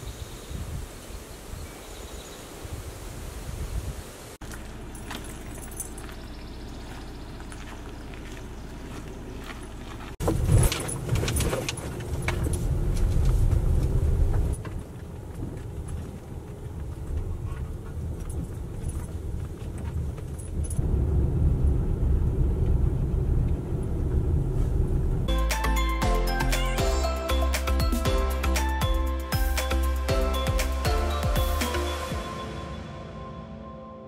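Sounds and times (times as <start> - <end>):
road and engine rumble in car: 4.2 - 32.2
light rattling and jingling: 4.4 - 13.4, 14.5 - 20.8.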